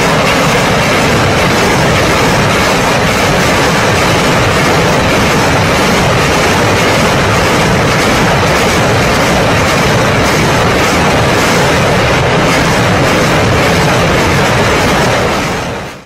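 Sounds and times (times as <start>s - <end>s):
rocket launchers firing: 0.0s - 16.0s.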